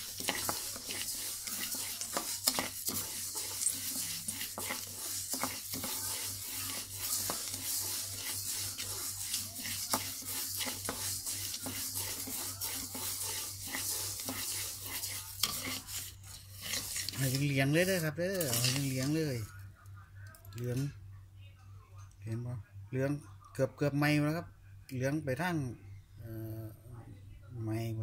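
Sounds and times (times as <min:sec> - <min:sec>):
rice stirred in a wok: 0:00.0 - 0:19.6.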